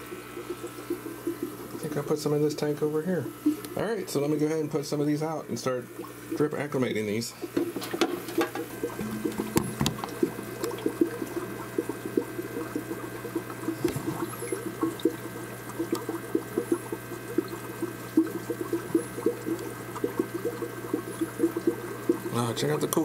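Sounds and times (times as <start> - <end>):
water trickling and bubbling: 0.0 - 2.6, 5.8 - 6.8, 7.4 - 23.0
low hum: 8.6 - 11.6.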